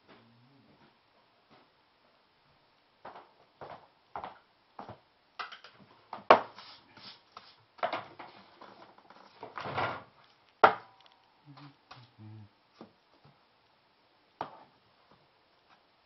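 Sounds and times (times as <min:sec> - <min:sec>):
hand brush sweeping floor: 0:06.3 - 0:09.4.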